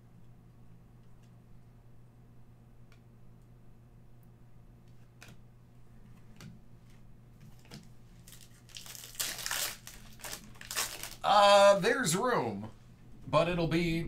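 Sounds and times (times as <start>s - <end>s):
foil pack tearing and crinkling: 8.2s - 11.3s.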